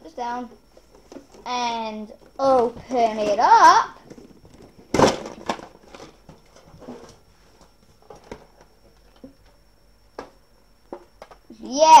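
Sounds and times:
case handling noises: 0:04.0 - 0:09.6.

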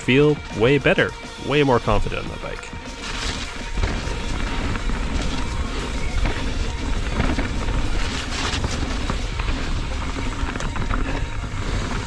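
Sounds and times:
bike tyres rolling over dirt: 0:00.0 - 0:12.0
bike chain and frame clatter: 0:02.8 - 0:12.0.

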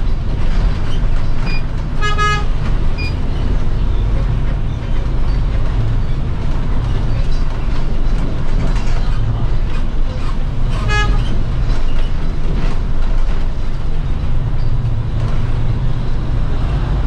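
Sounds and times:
bus engine and road rumble: 0:00.0 - 0:17.0
vehicle horn toot: 0:02.0 - 0:02.5, 0:10.8 - 0:11.3.

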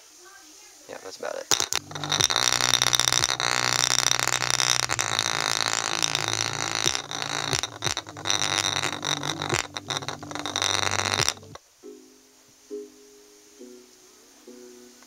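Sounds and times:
distorted bass from portable speaker: 0:01.5 - 0:11.6
golf ball rattling on speaker: 0:01.5 - 0:11.6.

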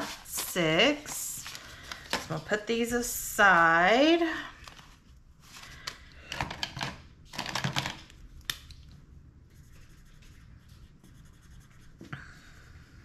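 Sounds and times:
pen scratching on paper: 0:09.6 - 0:12.0.

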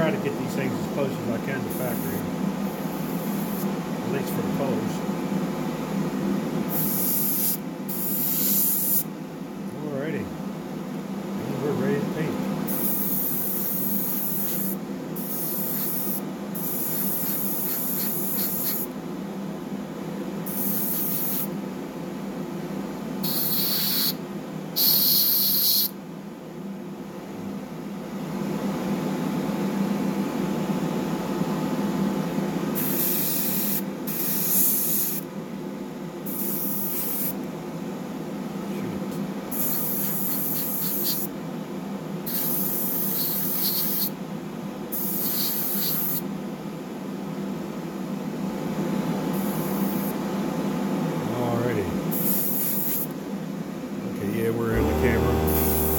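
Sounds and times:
steady low hum: 0:00.0 - 0:06.7, 0:54.1 - 0:55.9
airbrush hissing bursts: 0:06.7 - 0:09.0, 0:16.9 - 0:18.8.

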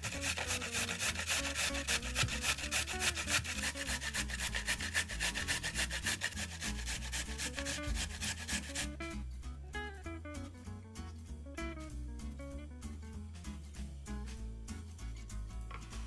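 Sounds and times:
carrot being grated: 0:00.0 - 0:09.0.

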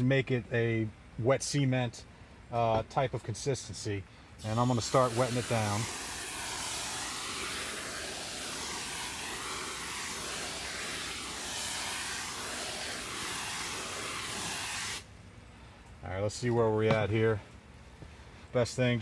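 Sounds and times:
hose nozzle spraying onto soil: 0:04.4 - 0:15.1.

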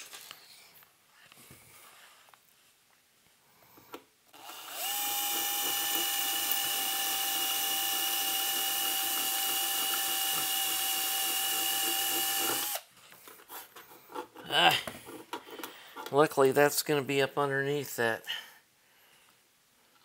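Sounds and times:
electric drill whining: 0:04.3 - 0:12.9.

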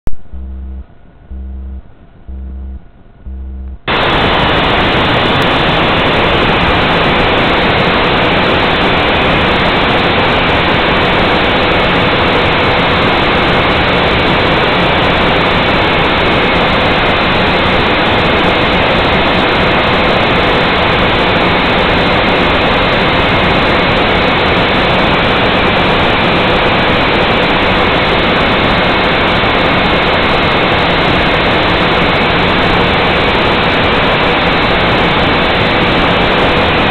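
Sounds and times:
music pulses: 0:00.1 - 0:04.2.

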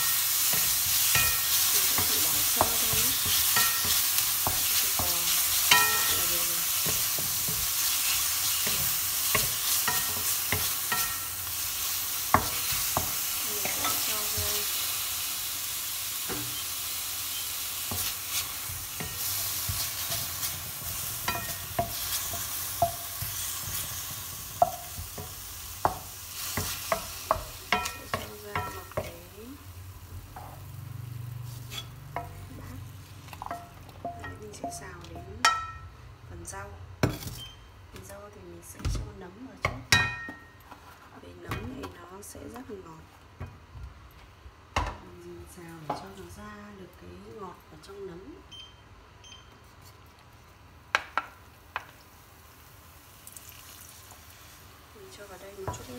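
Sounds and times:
meat sizzling in a frying pan: 0:00.0 - 0:33.4, 0:51.5 - 0:55.9
wooden spatula scraping: 0:31.4 - 0:32.0.

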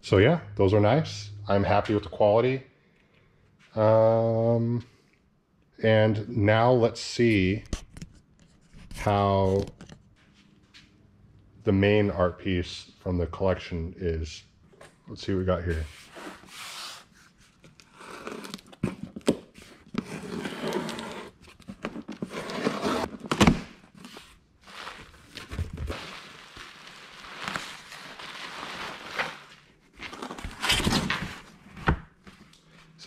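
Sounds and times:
cardboard flaps scraping and rustling: 0:15.7 - 0:32.5.

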